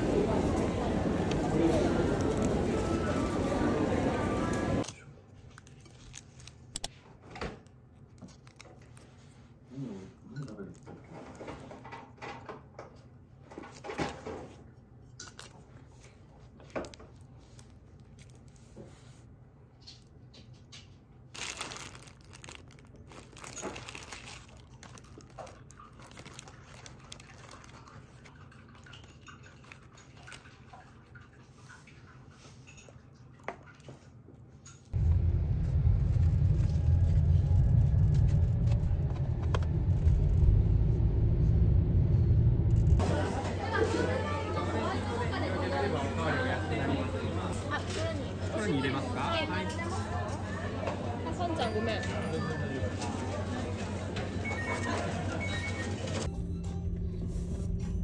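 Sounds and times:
paper wrapper rustling: 5.3 - 6.8, 8.1 - 9.5, 21.2 - 28.2
car rumble from inside cabin: 35.0 - 43.0.

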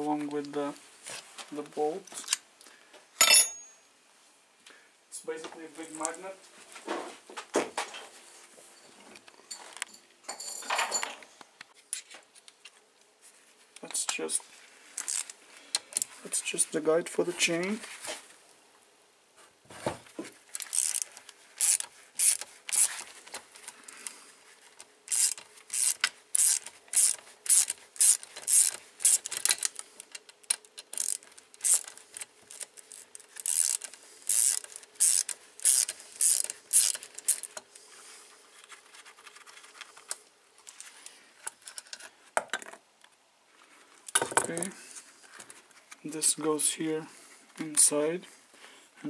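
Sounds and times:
ratchet wrench clicking: 15.0 - 15.3, 20.6 - 23.0, 25.1 - 37.5.

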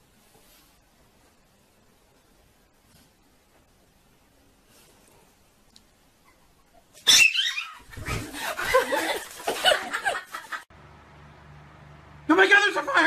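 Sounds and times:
animal cries: 7.0 - 8.2
dog and cat scuffling: 7.8 - 10.4
low steady hum: 10.7 - 12.4.

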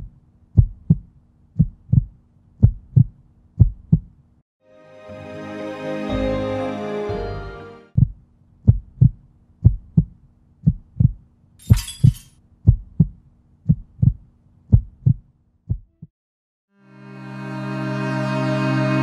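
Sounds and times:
heartbeat double thuds: 0.0 - 4.2, 8.0 - 11.2, 12.6 - 16.1.

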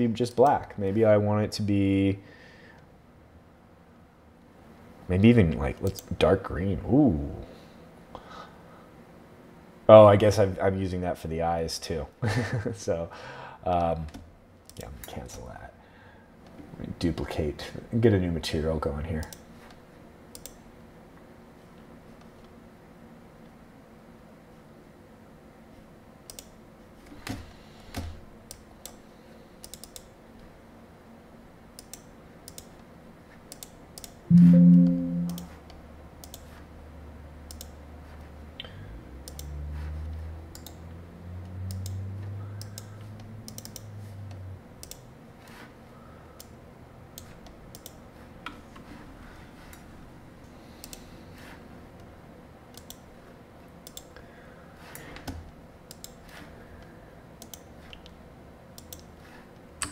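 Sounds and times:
loud low sound with tone: 34.3 - 35.5
mouse and keyboard clicks: 42.6 - 42.9, 43.5 - 43.9.

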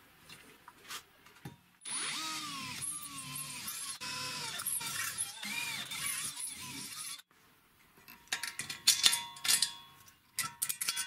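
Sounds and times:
power drill boring into steel: 1.8 - 7.3.

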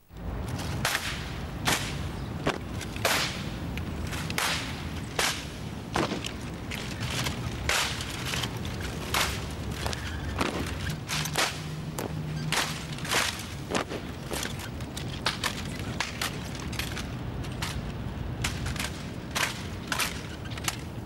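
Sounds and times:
rifles slapping gloved hands: 0.6 - 7.0.

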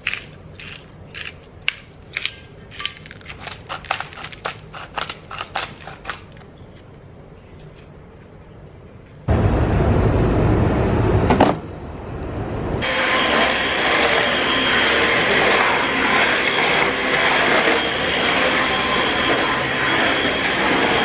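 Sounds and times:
loud low rushing noise: 9.3 - 14.4
stick vacuum whining: 12.8 - 21.0.

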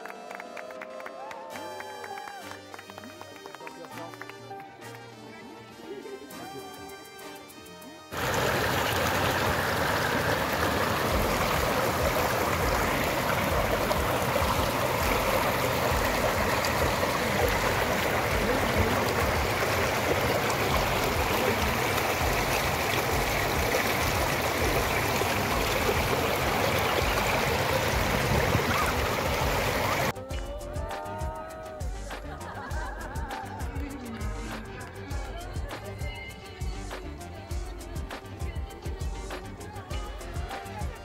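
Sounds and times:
water rushing over rocks: 8.1 - 30.1.

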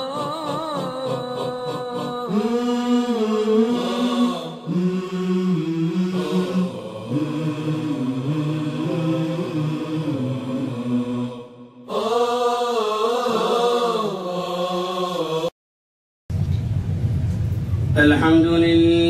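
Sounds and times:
melodic vocal chanting: 0.0 - 15.6.

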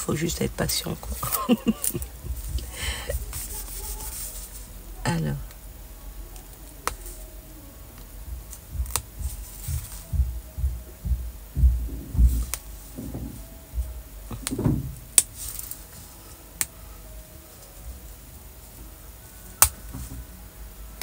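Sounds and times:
plastic film crackling: 0.0 - 10.1
soft low thuds: 0.4 - 6.2, 6.8 - 15.6
hands rubbing on fabric: 1.1 - 4.7.

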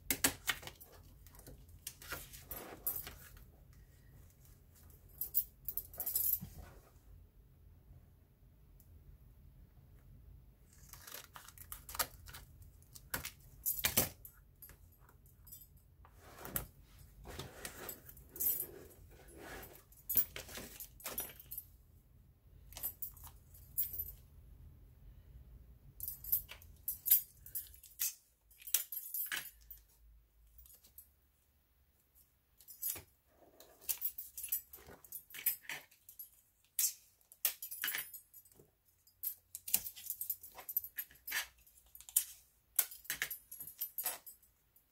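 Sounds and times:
metal bangles jangling: 26.0 - 29.9, 33.7 - 44.9.

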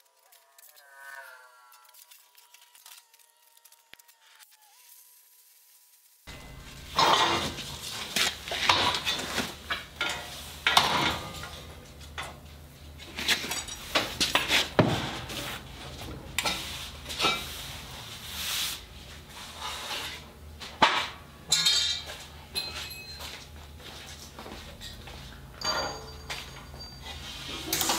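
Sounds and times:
metal clanking on metal: 6.3 - 12.4, 20.8 - 23.2, 25.6 - 27.9.

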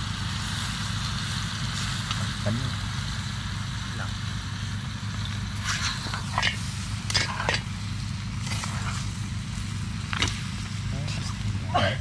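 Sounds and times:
steady low hum: 0.0 - 12.0
utensils clinking against a pot: 5.7 - 7.7.

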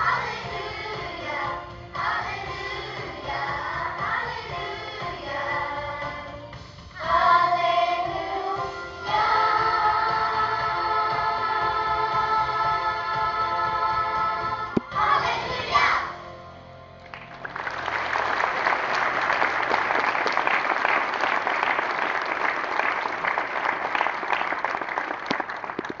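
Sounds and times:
children's choir singing: 0.0 - 6.4, 7.0 - 16.2
congregation applauding: 17.0 - 26.0.

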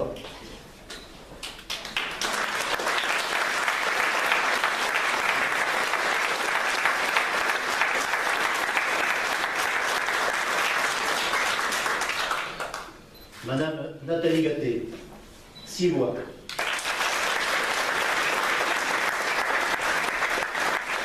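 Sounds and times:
audience applauding: 1.4 - 12.9, 16.5 - 21.0.

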